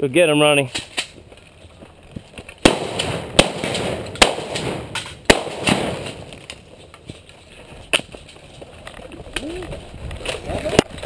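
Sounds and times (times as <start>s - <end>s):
shotgun shots echoing: 2.6s - 6.5s.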